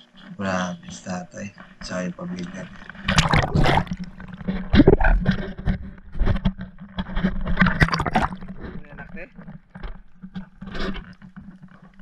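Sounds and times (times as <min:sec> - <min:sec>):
water splashing and sloshing: 0:01.8 - 0:12.0
muffled underwater bubbling: 0:01.9 - 0:05.7, 0:07.5 - 0:12.0.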